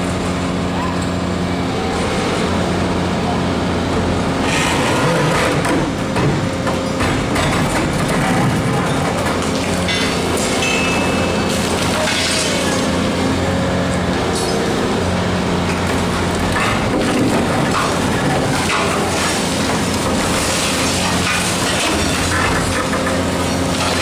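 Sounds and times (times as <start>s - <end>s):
excavator engine running: 0.0s - 24.0s
hydraulic crusher crunching concrete: 0.0s - 24.0s
concrete cracking: 15.7s - 24.0s
debris falling: 15.7s - 24.0s.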